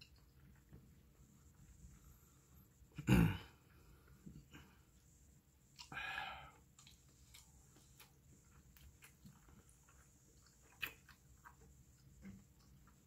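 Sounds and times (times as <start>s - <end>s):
person chewing: 5.7s - 13.0s.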